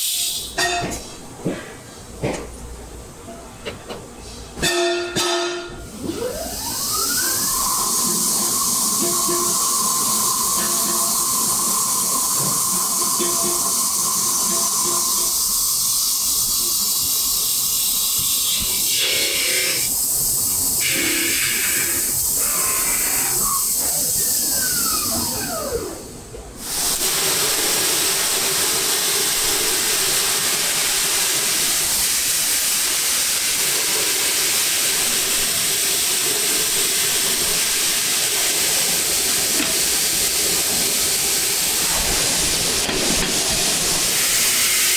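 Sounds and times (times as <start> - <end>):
grit-blasting cabinet hiss: 0.0 - 0.6, 5.9 - 44.9
hiss of coolant spray: 0.0 - 0.6, 5.9 - 44.9
machine tones: 4.6 - 15.7
falling whine: 5.7 - 16.6
lathe turning metal: 6.0 - 15.6.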